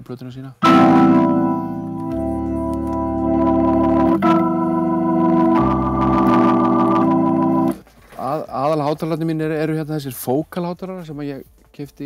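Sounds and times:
hammond organ chords: 0:00.6 - 0:07.8.

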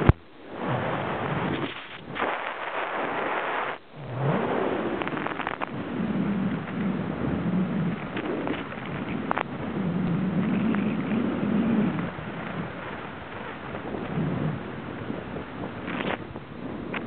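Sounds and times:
faint wavering low hum: 0:00.0 - 0:17.0
wind buffeting microphone: 0:00.0 - 0:17.0.

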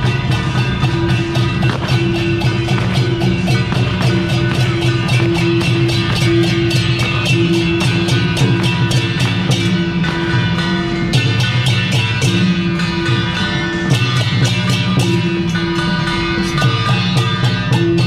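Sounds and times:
hand cymbals clashing: 0:00.0 - 0:18.0
sustained melody line: 0:00.0 - 0:18.0.

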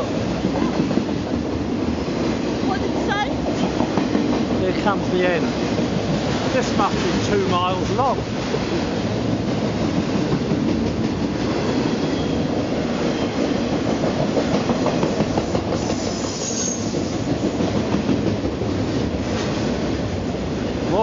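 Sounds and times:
clickety-clack over rail joints: 0:00.0 - 0:21.0
train wheels rattling on rails: 0:00.0 - 0:21.0
high wheel squeal: 0:15.8 - 0:17.1.

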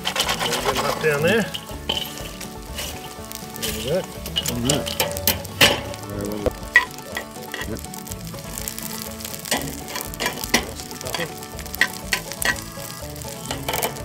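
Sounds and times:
knife scraping in pan: 0:00.0 - 0:05.9
garlic sizzling in oil: 0:00.0 - 0:14.0.

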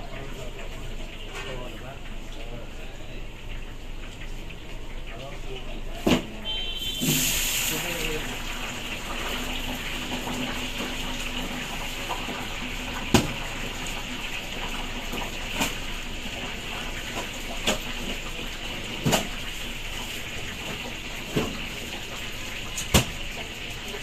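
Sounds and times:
kitchen rushing hiss: 0:06.8 - 0:08.3.

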